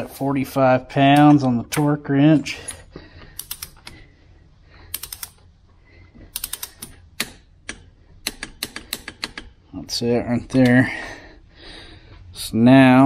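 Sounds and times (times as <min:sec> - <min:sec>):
torque wrench clicking: 0:03.4 - 0:03.9, 0:04.9 - 0:05.4, 0:06.3 - 0:09.5.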